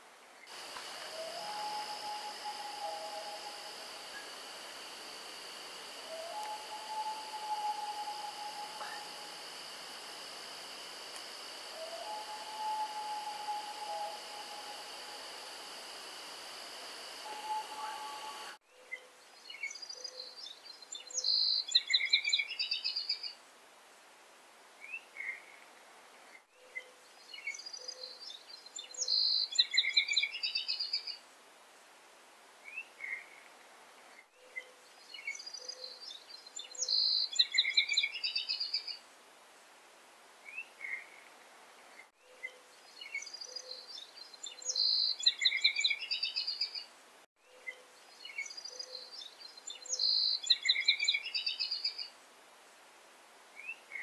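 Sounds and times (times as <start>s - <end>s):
steady hiss: 0.0s - 18.6s
songbirds chirping and trilling: 0.4s - 23.3s, 26.5s - 31.1s, 34.3s - 39.0s, 41.9s - 52.1s.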